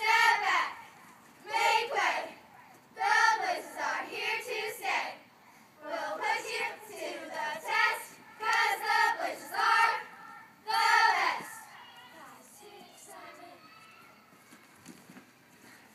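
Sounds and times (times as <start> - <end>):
children chanting a cheer: 5.8 - 14.5.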